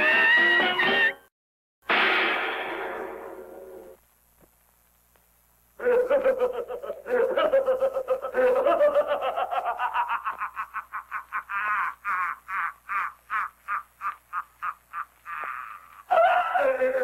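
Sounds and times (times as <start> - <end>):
cartoon character belly laugh: 5.8 - 17.0.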